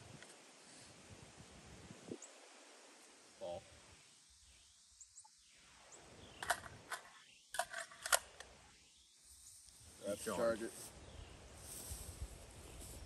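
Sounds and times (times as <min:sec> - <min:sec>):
rifle metallic clicks and rattles: 0:06.4 - 0:08.5.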